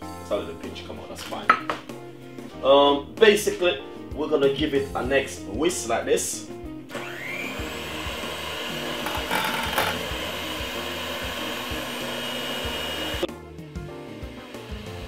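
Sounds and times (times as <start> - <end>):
electric hand mixer whining: 6.9 - 13.3, 14.2 - 15.0.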